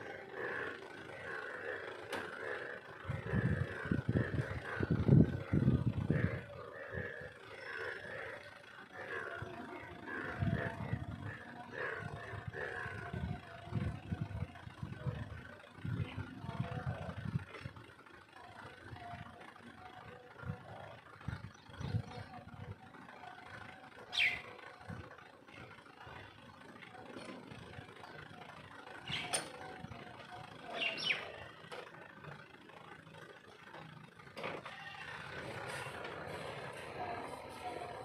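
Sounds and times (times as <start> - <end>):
tractor engine humming: 0.0 - 38.0.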